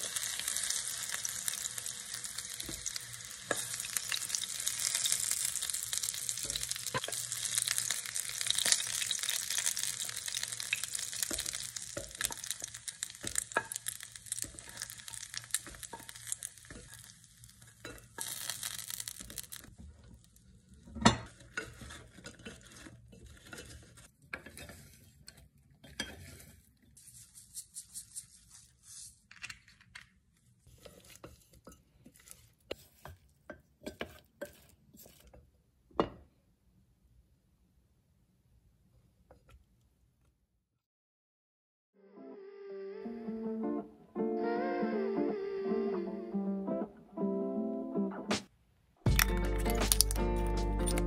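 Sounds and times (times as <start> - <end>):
chicken sizzling in oil: 0.0 - 20.0
wooden spoon knocking and scraping pan: 10.7 - 20.1, 20.9 - 26.6, 30.7 - 36.3.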